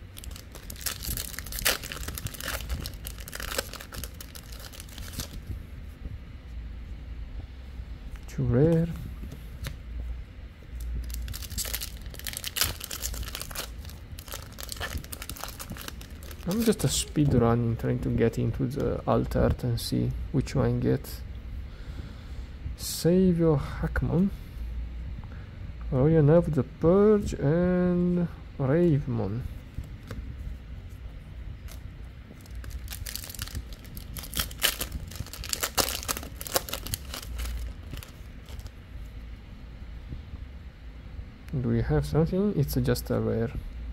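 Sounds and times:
wrapper crinkling and tearing: 0.0s - 5.4s, 11.0s - 17.2s, 32.4s - 38.7s.

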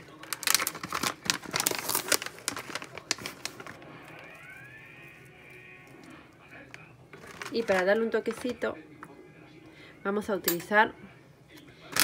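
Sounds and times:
plastic packet crinkling: 0.0s - 8.6s.

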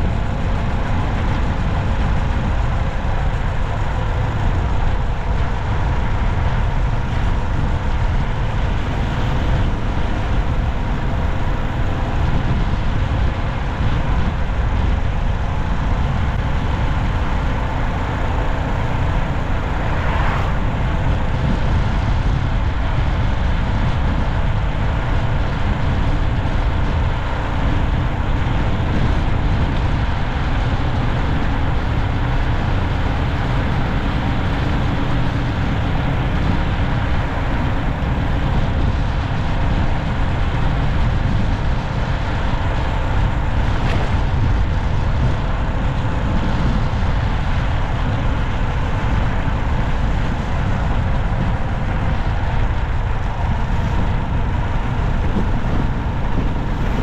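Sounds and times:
car road noise: 0.0s - 57.0s.

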